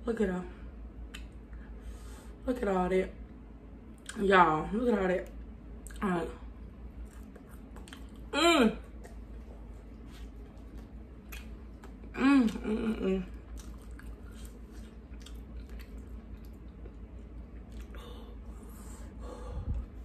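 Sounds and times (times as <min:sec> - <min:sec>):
person chewing crunchy food: 0:06.9 - 0:08.3, 0:09.0 - 0:18.0.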